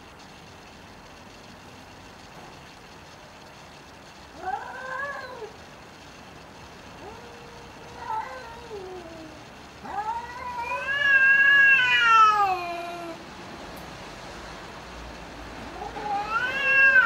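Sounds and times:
cats yowling: 4.3 - 5.6, 7.0 - 13.2, 15.6 - 17.0.

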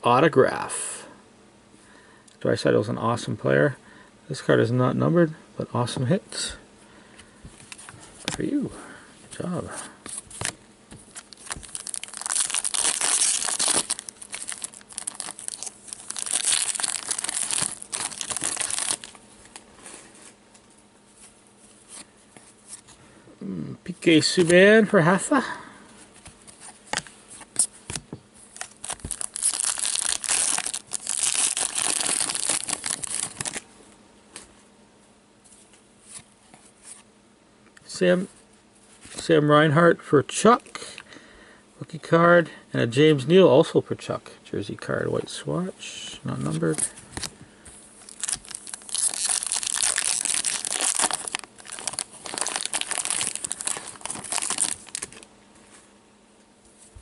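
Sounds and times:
plastic wrapper crinkling: 10.4 - 19.6, 28.5 - 33.6, 48.0 - 55.3.

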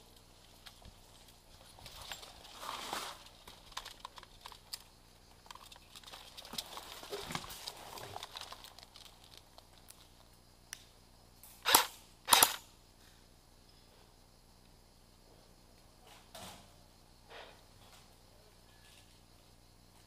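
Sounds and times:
clothing and gear rustling: 1.0 - 3.9.

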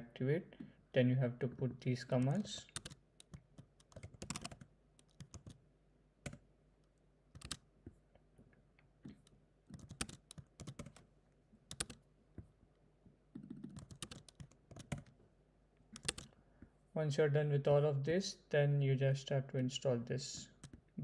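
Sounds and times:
keyboard keys clicking: 2.2 - 5.6, 7.4 - 7.6, 9.2 - 11.0, 11.7 - 12.0, 13.4 - 15.1, 16.0 - 16.3.

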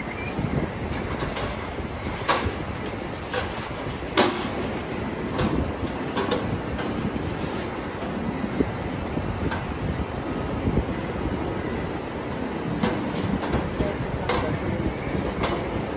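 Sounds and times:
steel cattle crush clanking: 0.8 - 8.5, 12.6 - 15.9.

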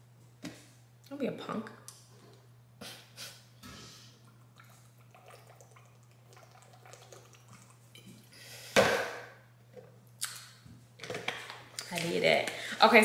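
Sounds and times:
person gulping water: 4.1 - 8.3.

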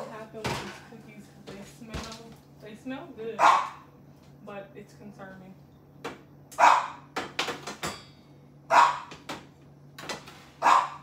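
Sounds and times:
dog barking indoors: 3.4 - 3.9, 6.5 - 7.2, 8.7 - 9.3, 10.6 - 11.0.

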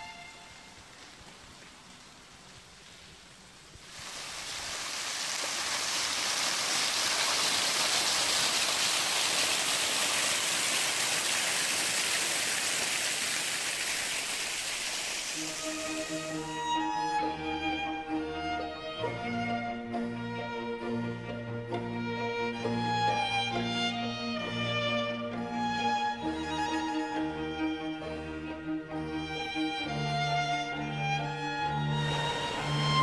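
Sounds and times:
violin music: 0.0 - 0.9, 15.4 - 33.0
waterfall rushing: 0.0 - 1.9, 3.8 - 16.6, 31.9 - 33.0.

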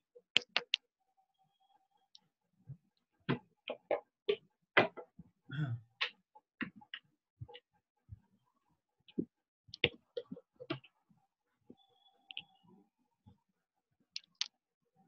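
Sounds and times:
irregular clicks and light taps: 0.3 - 0.9, 9.1 - 11.0, 11.7 - 12.6, 14.2 - 14.6.

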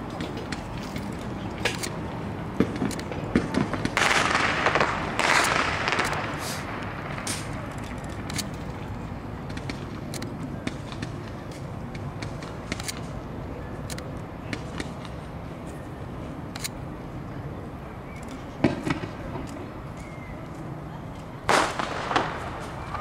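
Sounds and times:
city hum: 0.0 - 23.0
firework crackles and pops: 2.6 - 8.8, 18.6 - 19.4, 21.5 - 23.0.

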